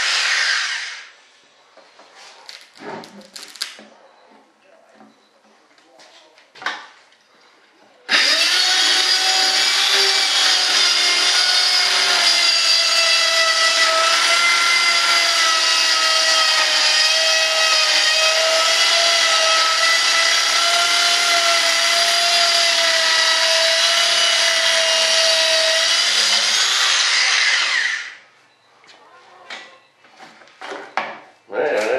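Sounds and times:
power tool cutting fibreglass: 0:00.0 - 0:01.1, 0:08.1 - 0:28.2.

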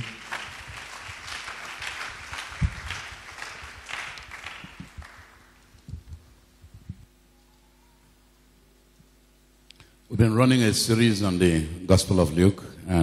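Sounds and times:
congregation applauding: 0:00.0 - 0:05.8
microphone handling thumps: 0:05.8 - 0:07.1.

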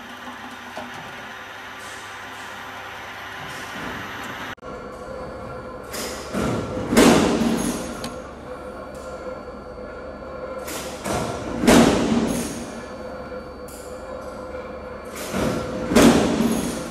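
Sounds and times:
machine running: 0:00.0 - 0:08.6.

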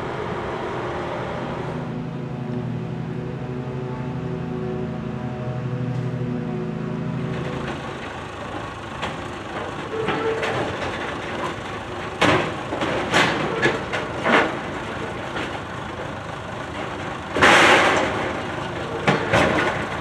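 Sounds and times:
wheels clanking on metal: 0:07.2 - 0:20.0.

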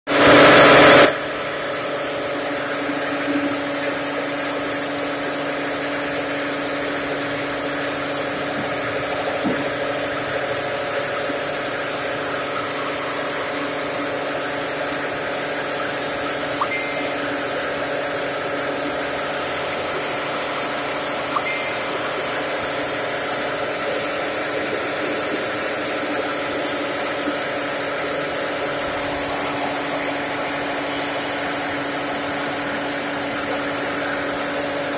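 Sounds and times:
flour mill humming: 0:00.1 - 0:34.9.

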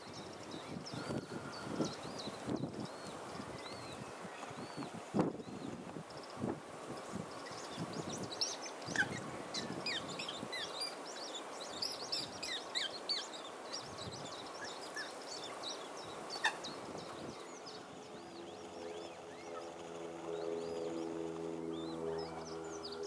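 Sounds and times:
waterbirds calling: 0:00.0 - 0:23.0.

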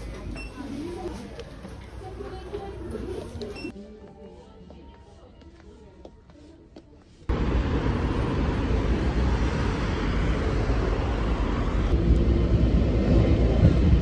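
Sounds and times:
passing traffic rumble: 0:07.3 - 0:14.0.

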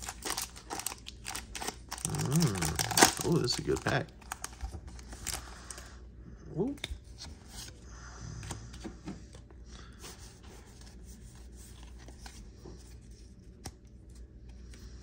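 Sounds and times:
cards rustling and sliding: 0:10.0 - 0:14.8.

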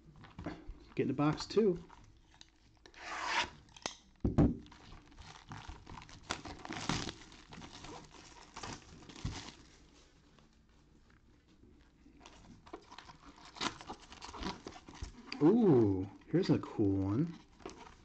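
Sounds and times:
cellophane tearing and crinkling: 0:00.2 - 0:10.0, 0:12.2 - 0:16.5, 0:17.1 - 0:18.0.

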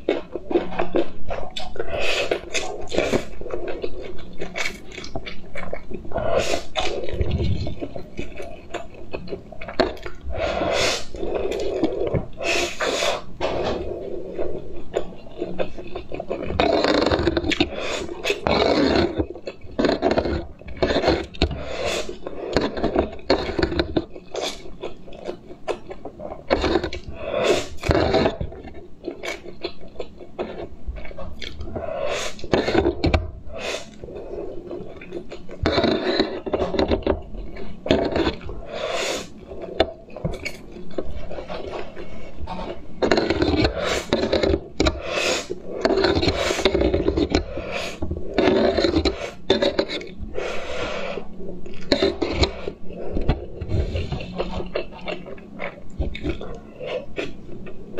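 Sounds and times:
slurping noodles: 0:00.0 - 0:09.0, 0:09.6 - 0:57.9
chewing: 0:00.0 - 0:57.9
fork scraping on a plate: 0:41.0 - 0:50.1.

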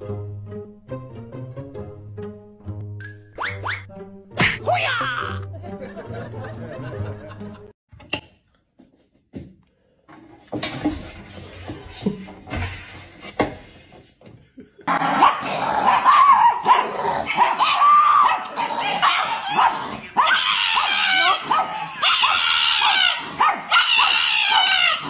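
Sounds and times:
dog yipping and howling: 0:15.2 - 0:25.0.

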